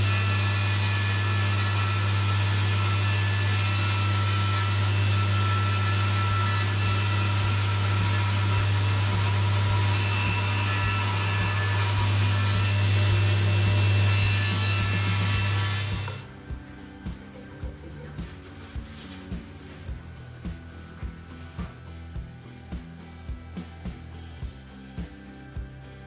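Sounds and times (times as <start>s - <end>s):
table saw cutting wooden dowel: 0.0s - 16.4s.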